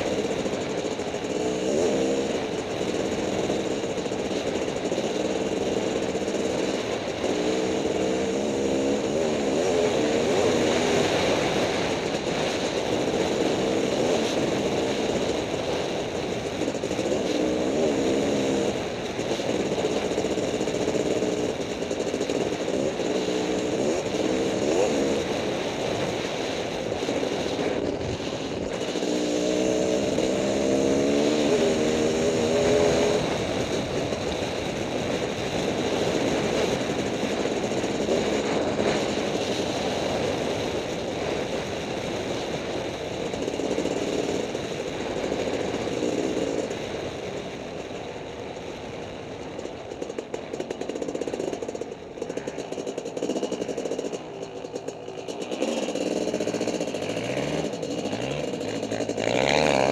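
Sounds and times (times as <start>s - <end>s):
dirt bike engine revving: 0.0s - 46.8s, 50.5s - 59.9s
wind noise on microphone: 24.8s - 43.4s.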